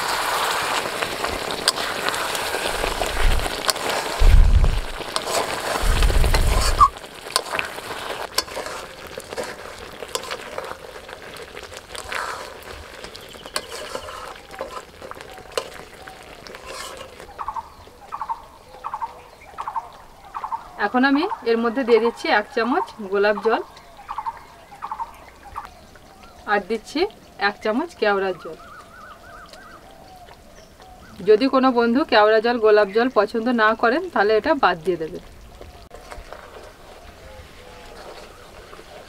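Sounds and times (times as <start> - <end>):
curry bubbling and sizzling: 0.0 - 39.0
metal spoon stirring pot: 1.4 - 4.2, 4.8 - 17.3
low thumps: 4.2 - 5.1, 5.8 - 6.9.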